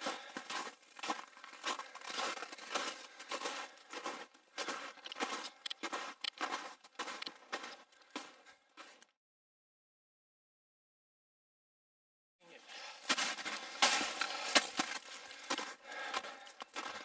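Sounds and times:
footsteps crunching in snow: 0.0 - 9.0, 12.5 - 17.0.

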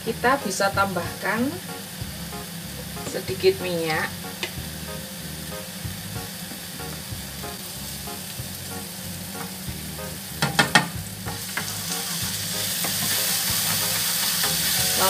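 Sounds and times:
paste sizzling in hot pan: 4.1 - 15.0
sharp knocks: 10.4 - 11.0
spatula scraping pan: 11.5 - 15.0.

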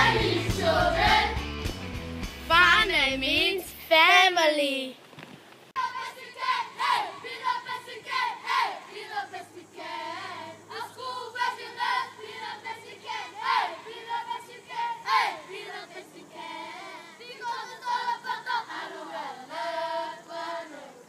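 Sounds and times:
children singing together: 0.0 - 1.4, 5.8 - 21.0.

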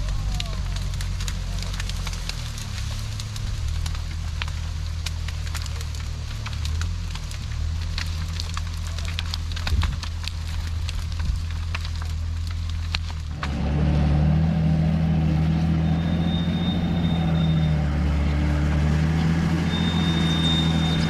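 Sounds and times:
twigs snapping: 0.0 - 15.8
low engine drone: 11.7 - 21.0.

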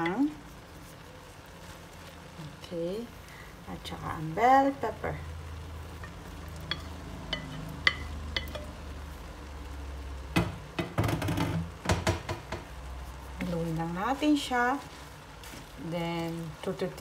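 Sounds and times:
food sizzling in a pan: 0.0 - 17.0
knocks and scrapes in pan: 10.3 - 12.8.

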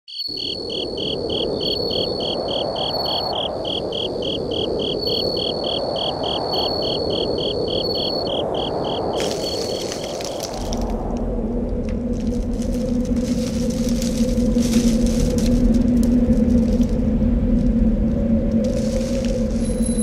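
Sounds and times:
high insect trill: 0.1 - 11.0, 12.2 - 20.0
insects pulsed chirping: 0.1 - 20.0
steady rushing noise: 0.6 - 20.0.

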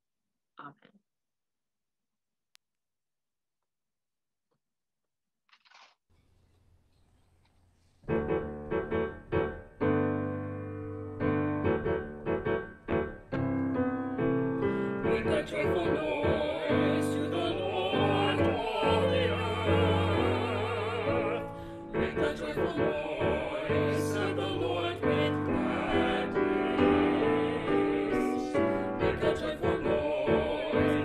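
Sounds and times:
piano: 7.9 - 31.0
small group singing with vibrato: 14.6 - 31.0.

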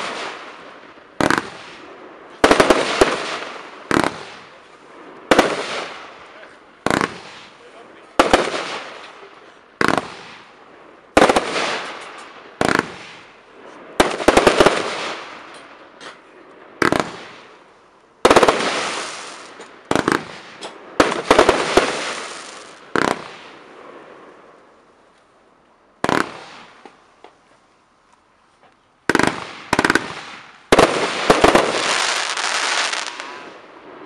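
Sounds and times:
firework shots bursting: 0.0 - 4.6, 5.3 - 6.2, 6.8 - 7.6, 8.2 - 9.2, 9.8 - 13.4, 14.0 - 16.2, 16.8 - 17.6, 18.2 - 23.8, 26.0 - 26.9, 29.1 - 33.6
firework crackling: 0.0 - 25.1, 26.0 - 27.2, 29.1 - 34.0.

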